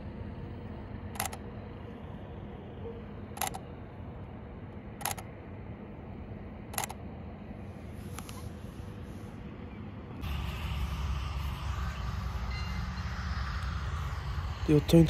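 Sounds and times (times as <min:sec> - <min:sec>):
low background hum: 0:00.0 - 0:15.0
camera shutter clicks: 0:01.2 - 0:01.4, 0:03.4 - 0:03.6, 0:05.0 - 0:05.3, 0:06.8 - 0:07.0.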